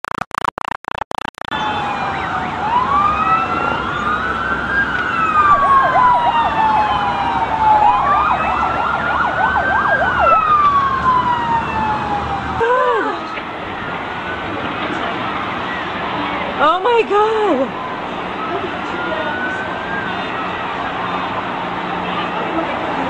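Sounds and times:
fast yelping siren: 0:01.5 - 0:12.7
wailing sirens: 0:01.5 - 0:23.0.

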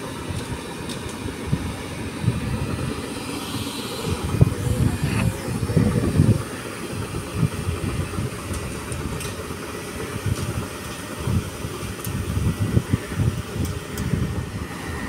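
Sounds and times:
road sweeper low rumble: 0:00.0 - 0:15.0
faint high whine: 0:01.8 - 0:07.1.

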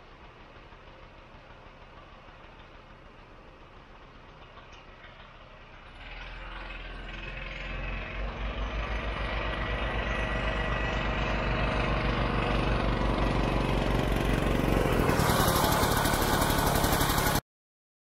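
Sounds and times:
snowmobile two-stroke engine passing: 0:05.9 - 0:17.4.

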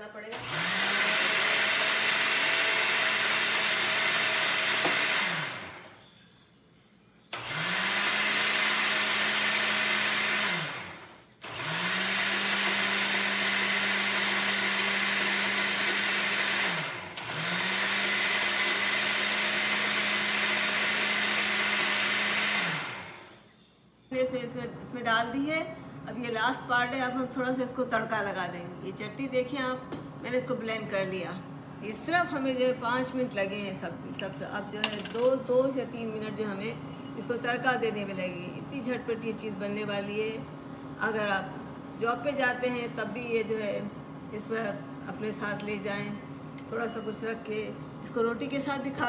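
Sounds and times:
blender motor running: 0:00.3 - 0:06.0, 0:07.3 - 0:23.4.

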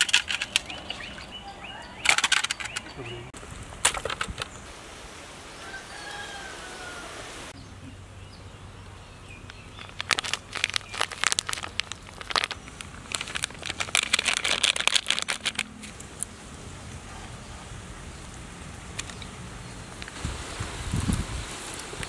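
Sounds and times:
plastic packet crinkling: 0:09.8 - 0:15.9.

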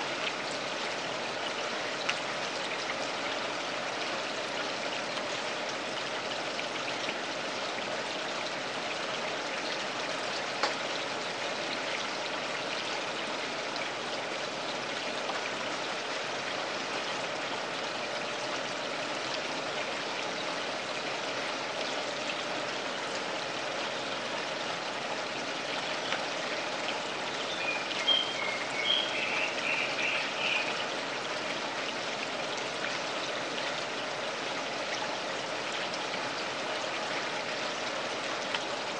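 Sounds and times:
water trickling and splashing: 0:00.0 - 0:38.9
high chirps: 0:27.5 - 0:30.7.

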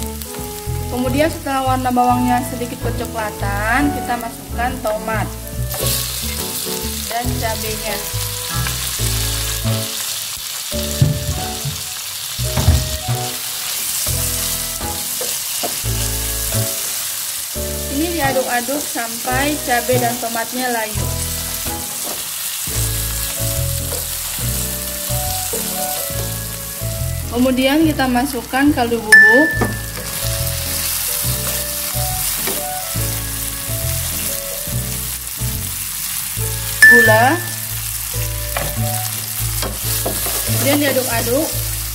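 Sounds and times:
soft background music: 0:00.0 - 0:10.1, 0:17.6 - 0:22.0, 0:22.8 - 0:41.9
food sizzling in oil: 0:00.0 - 0:41.9
sharp knocks: 0:11.0 - 0:11.8, 0:12.6 - 0:13.0.

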